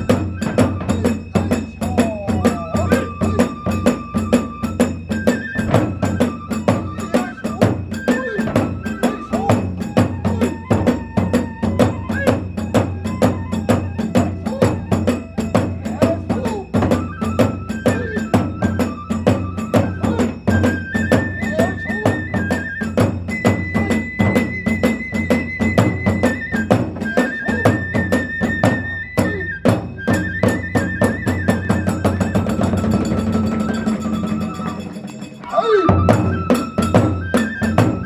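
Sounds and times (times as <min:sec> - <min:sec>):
big drum beat: 0:00.0 - 0:35.2
bamboo flute melody: 0:00.0 - 0:38.0
hand cymbals clashing: 0:32.2 - 0:37.6.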